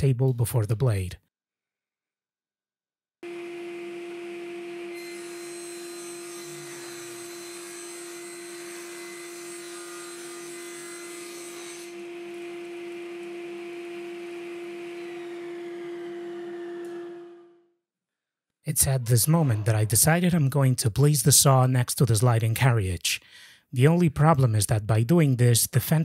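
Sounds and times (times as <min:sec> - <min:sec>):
table saw motor humming: 0:03.2 - 0:17.6.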